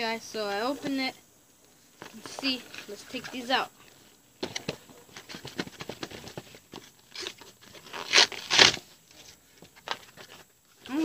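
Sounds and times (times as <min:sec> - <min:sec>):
cardboard tearing: 0:04.9 - 0:08.9.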